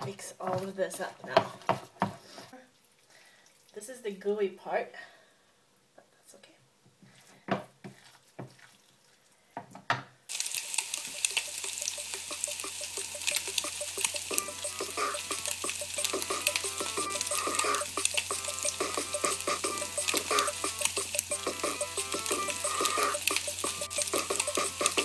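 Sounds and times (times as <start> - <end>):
meatballs sizzling in oil: 10.3 - 25.0.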